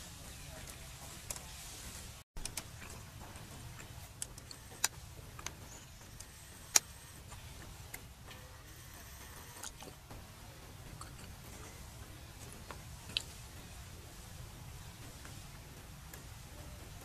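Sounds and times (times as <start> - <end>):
sharp clicks and ticks: 2.4 - 13.8.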